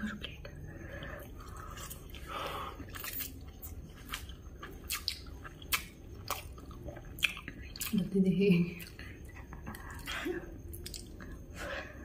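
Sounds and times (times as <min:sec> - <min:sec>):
wet chewing and slurping: 0:01.0 - 0:08.0.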